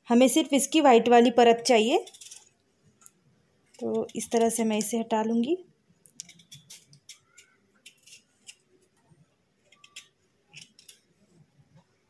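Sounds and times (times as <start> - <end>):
knife scraping watermelon rind: 2.0 - 2.5, 6.2 - 8.6, 9.6 - 11.1.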